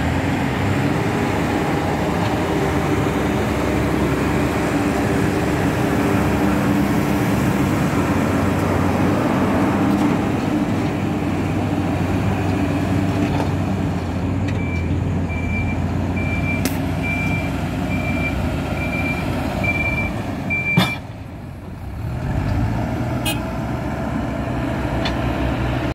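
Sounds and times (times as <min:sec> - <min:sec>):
diesel engine working under load: 0:00.0 - 0:25.9
reversing alarm beeps: 0:14.6 - 0:21.0.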